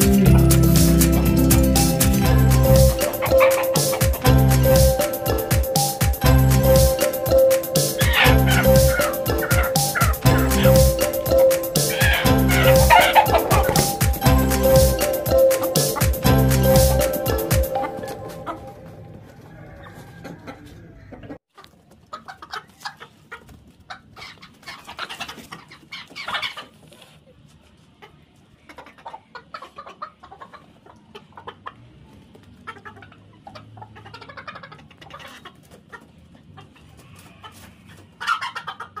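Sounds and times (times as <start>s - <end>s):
chickens clucking: 0.0s - 39.0s.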